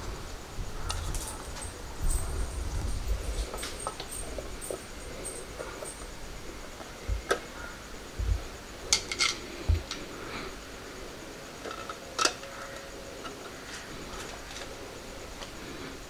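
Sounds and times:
dull low bumps: 1.9s - 8.8s, 9.6s - 9.9s.

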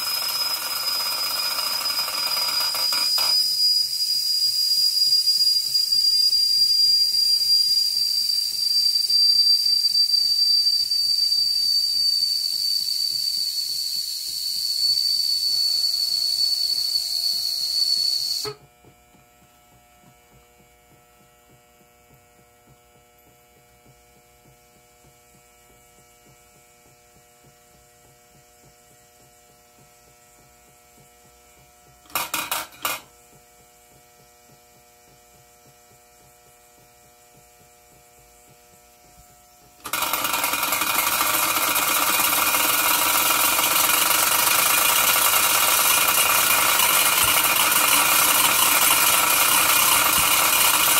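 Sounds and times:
steam hissing with mechanical rattle: 0.0s - 18.7s, 24.5s - 50.9s
steam whistle blowing: 0.3s - 18.6s.

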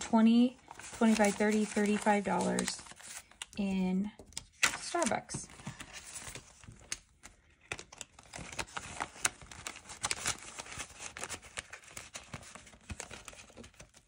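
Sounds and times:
paper bills rustling: 0.3s - 3.6s, 4.6s - 14.0s
plastic pouch crinkling: 0.6s - 3.6s.

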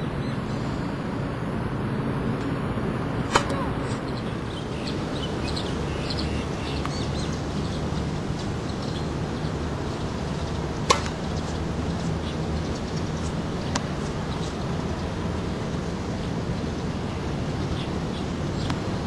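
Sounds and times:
low background rumble: 0.0s - 19.0s
tennis ball struck by racket: 3.2s - 4.1s, 10.2s - 11.5s, 13.7s - 14.2s.

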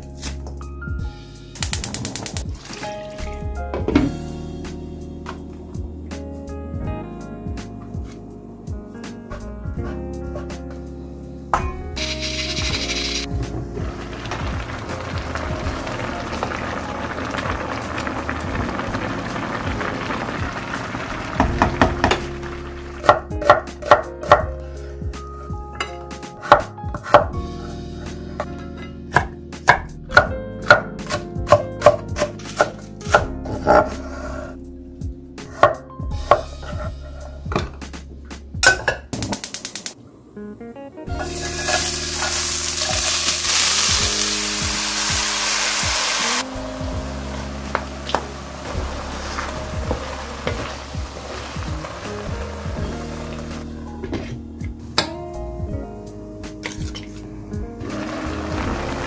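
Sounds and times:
vegetables sizzling in a wok: 12.0s - 23.0s, 41.1s - 53.8s, 57.8s - 59.0s
soup bubbling: 12.8s - 23.0s, 47.1s - 53.8s, 57.8s - 59.0s.

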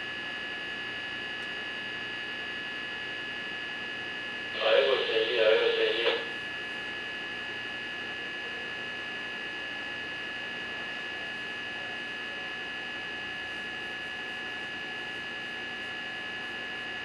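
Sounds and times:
electrical hum: 0.8s - 11.9s.

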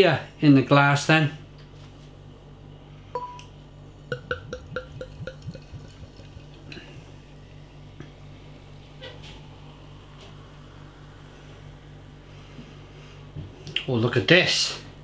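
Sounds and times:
glass clinking on glass: 3.2s - 3.5s
beer pouring into a glass: 4.1s - 7.0s
bottle glugging: 4.1s - 7.0s.

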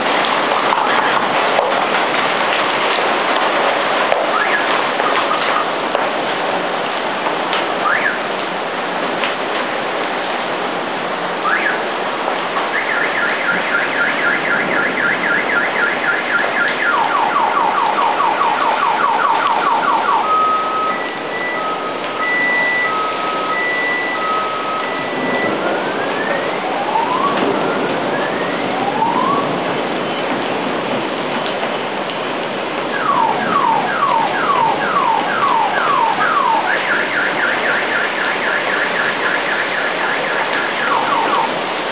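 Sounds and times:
heavy rain pouring: 0.0s - 41.9s
car alarm: 4.2s - 5.8s, 7.8s - 8.3s, 11.4s - 11.8s, 12.6s - 29.6s, 32.9s - 41.6s.

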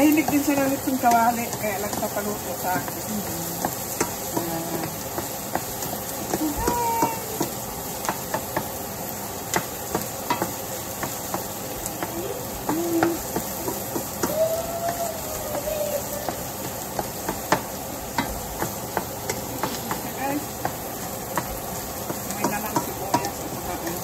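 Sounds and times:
onion and garlic sizzling in pan: 0.0s - 24.0s.

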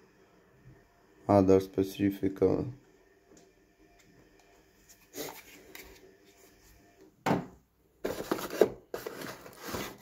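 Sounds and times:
rummaging in cardboard box: 8.0s - 10.0s.

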